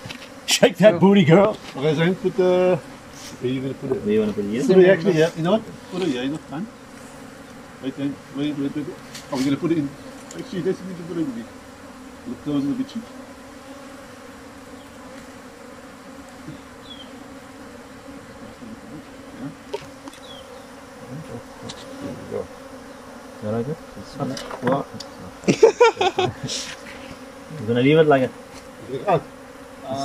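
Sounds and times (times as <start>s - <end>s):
honey bees buzzing: 0.0s - 30.0s
rustling and clattering of handling: 24.2s - 24.9s.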